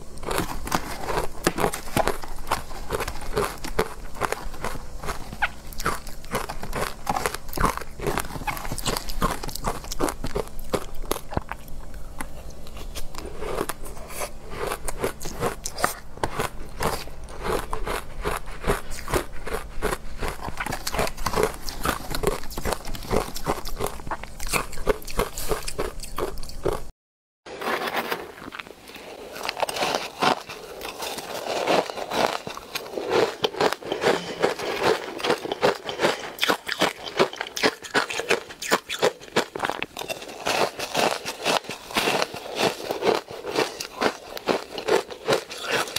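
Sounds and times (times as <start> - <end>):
crunching and chewing ice: 0.0 - 26.9, 27.5 - 45.9.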